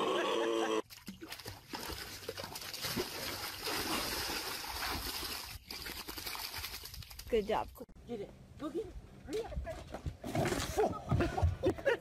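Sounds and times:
dogs splashing in shallow water: 0.8s - 7.6s.

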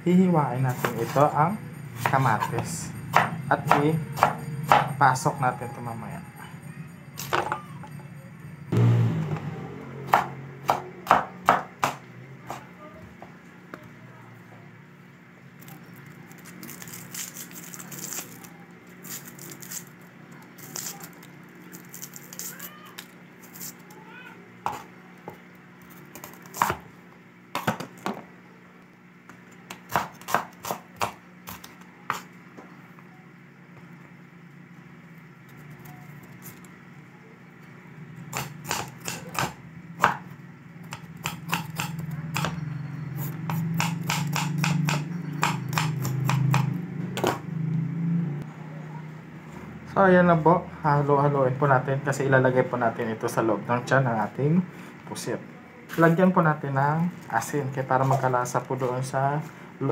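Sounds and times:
knife chopping on wooden board: 0.7s - 1.2s, 2.0s - 4.9s, 10.1s - 12.7s, 24.6s - 24.9s, 26.2s - 26.9s, 27.6s - 28.2s, 29.7s - 32.3s, 38.3s - 40.2s, 40.9s - 42.6s, 43.5s - 47.4s
low hum: 0.9s - 11.4s.

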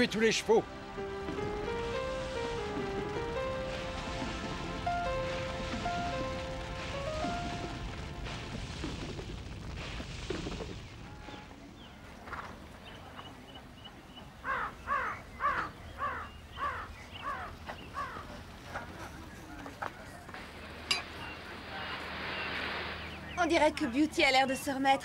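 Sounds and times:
crow cawing: 14.4s - 18.2s.

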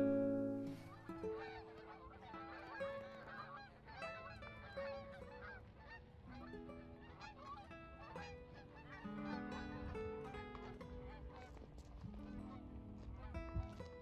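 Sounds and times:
soft music: 0.0s - 5.4s
geese honking: 0.0s - 13.8s.

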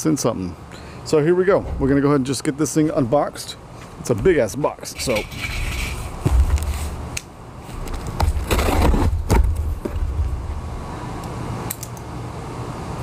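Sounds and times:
cardboard flaps scraping and knocking: 7.7s - 10.4s.

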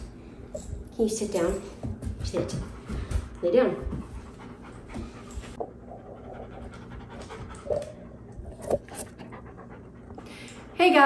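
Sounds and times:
dog panting: 2.2s - 11.0s.

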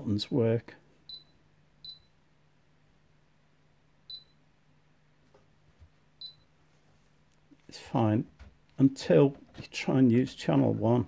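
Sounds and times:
faint low hum: 0.0s - 11.0s
oscilloscope key beeps: 1.1s - 2.2s, 4.1s - 4.4s, 6.2s - 6.5s.

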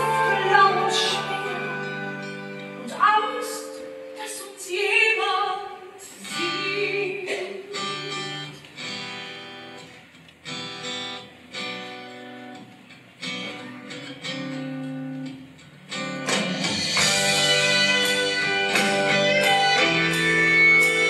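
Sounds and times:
strummed acoustic guitar chords: 0.0s - 4.2s, 7.2s - 21.0s
person singing: 0.0s - 8.6s.

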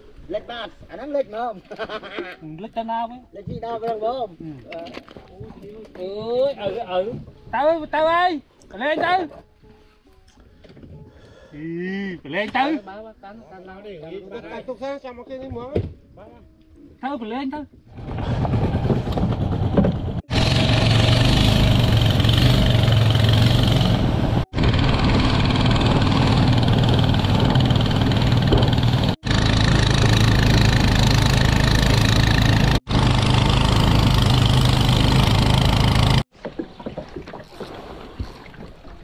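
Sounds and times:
small boat engine running: 20.3s - 36.2s.

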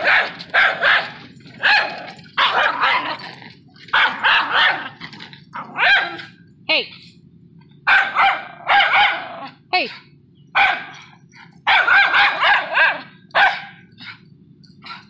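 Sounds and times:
dog barking: 0.0s - 3.2s, 3.9s - 5.0s, 5.6s - 6.4s, 7.9s - 9.6s, 10.6s - 14.2s
dog yelping: 0.0s - 6.4s, 7.8s - 9.6s, 10.5s - 14.2s
low steady hum: 0.0s - 15.0s.

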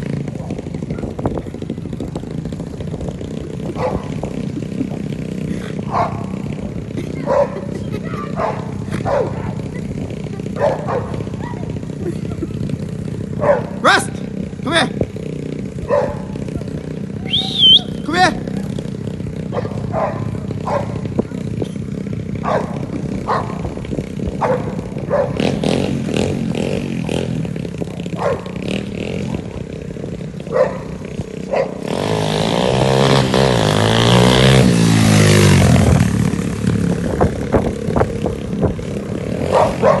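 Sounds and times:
small dirt bike engine revving: 0.0s - 40.0s
dog barking: 3.8s - 4.1s, 5.9s - 6.3s, 7.2s - 7.7s, 8.4s - 9.6s, 10.6s - 11.6s, 13.4s - 13.8s, 15.8s - 16.4s, 19.5s - 21.0s, 22.4s - 23.6s, 24.4s - 25.5s, 28.2s - 28.6s, 30.5s - 30.9s, 31.5s - 31.8s, 39.5s - 40.0s.

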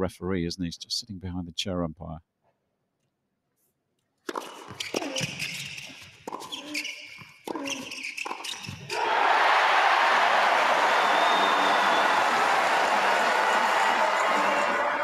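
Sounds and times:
shoe squeaks: 4.3s - 8.9s
crowd cheering and applause: 8.9s - 15.0s
players' cries: 8.9s - 15.0s.

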